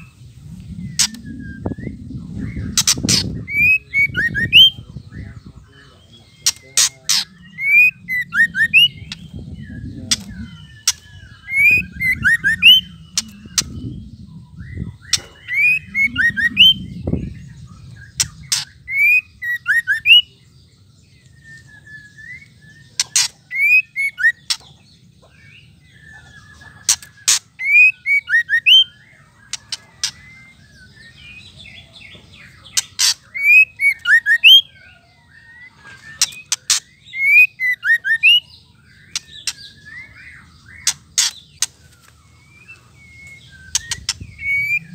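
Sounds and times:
low rumble: 0.0s - 3.6s, 4.3s - 19.4s
bird whistling and ticking: 0.6s - 4.9s, 6.4s - 20.3s, 21.2s - 24.7s, 26.0s - 31.6s, 32.5s - 34.8s, 35.7s - 44.9s.

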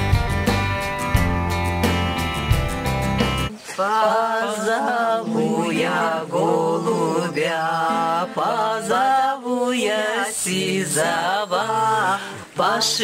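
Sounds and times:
group of people singing: 3.5s - 13.0s.

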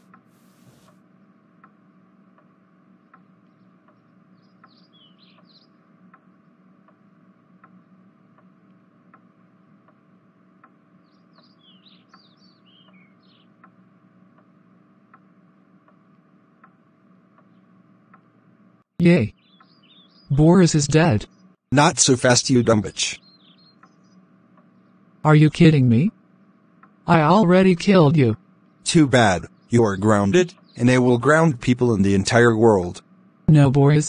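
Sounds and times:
low hum: 0.0s - 34.0s
birds chirping: 2.6s - 9.2s, 9.9s - 33.8s
clock ticking: 10.6s - 10.8s, 11.4s - 18.3s, 26.8s - 32.9s.

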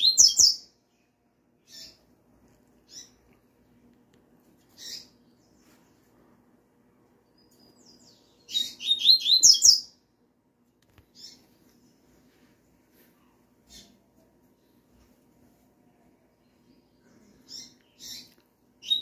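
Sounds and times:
bird song of falling whistled notes: 7.6s - 9.9s.

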